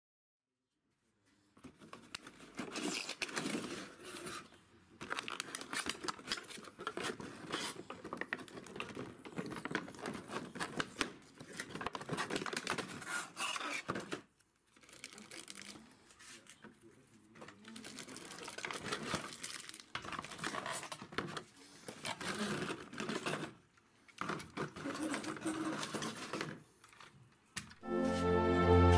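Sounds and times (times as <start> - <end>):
plastic packaging crinkling: 5.0 - 14.0, 14.6 - 16.4, 17.5 - 21.3.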